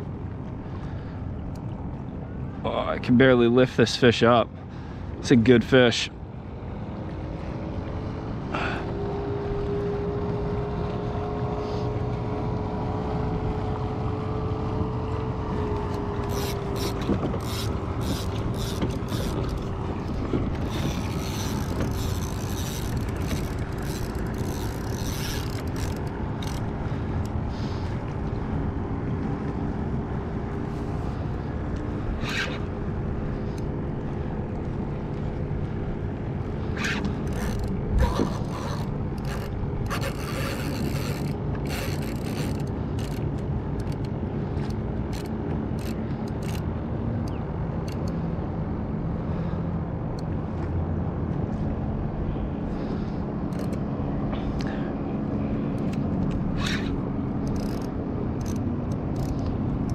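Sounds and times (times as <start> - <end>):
reel ratcheting clicks: 15.9 - 28.0, 36.6 - 48.2, 53.5 - 53.8, 55.7 - 59.9
fishing reel whirring: 16.2 - 28.0, 36.6 - 43.2, 43.8 - 46.7, 53.5 - 53.8, 55.7 - 59.9.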